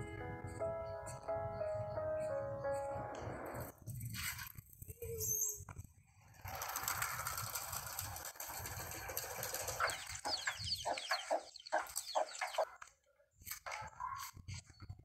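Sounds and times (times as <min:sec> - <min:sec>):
chickens clucking: 0:09.3 - 0:12.8.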